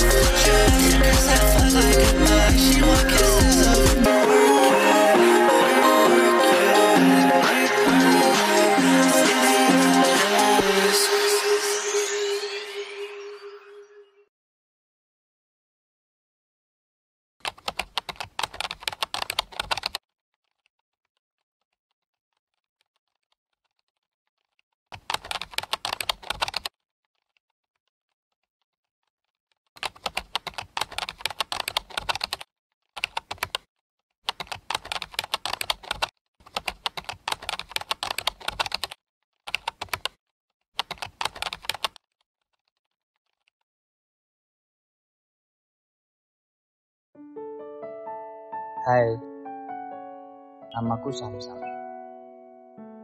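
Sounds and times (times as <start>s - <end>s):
computer keyboard typing: 17.4s - 20.0s, 24.9s - 26.7s, 29.8s - 33.7s, 34.3s - 40.2s, 40.8s - 42.0s.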